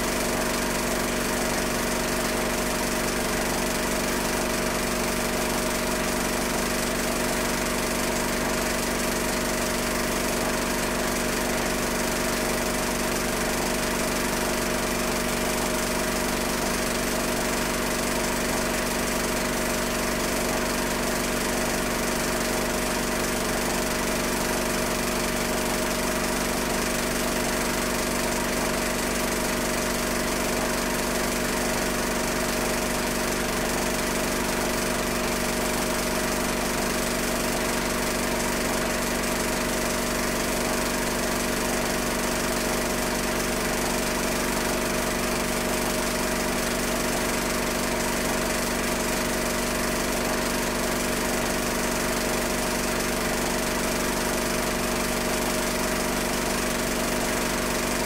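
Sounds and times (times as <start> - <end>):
film projector motor whirring: 0.0 - 58.0.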